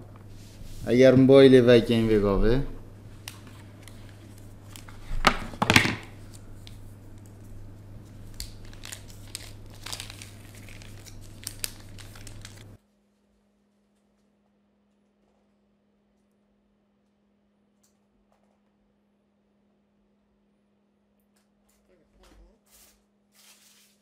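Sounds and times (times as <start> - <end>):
low steady hum: 0.0 - 22.6
packaging crinkling and rustling: 3.2 - 12.8.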